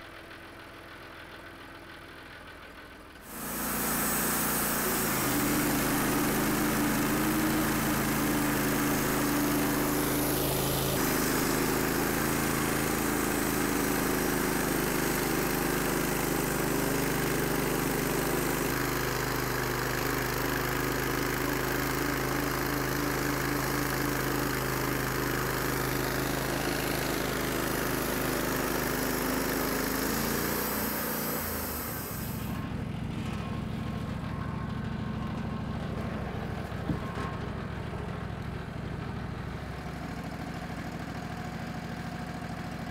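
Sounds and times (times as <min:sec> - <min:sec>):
bandsaw mill engine running: 0:00.0 - 0:42.9
saw blade cutting hiss: 0:03.2 - 0:17.4, 0:21.1 - 0:32.6.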